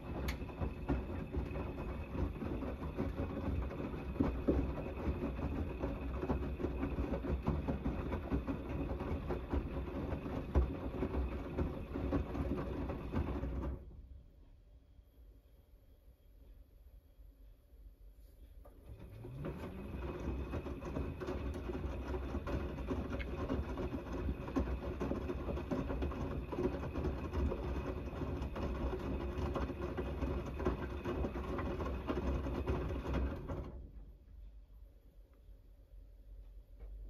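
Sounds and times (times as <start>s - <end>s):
laundry sloshing and knocking: 0.0s - 13.9s, 18.7s - 34.1s
washing machine motor whine: 0.0s - 14.2s, 18.6s - 34.3s.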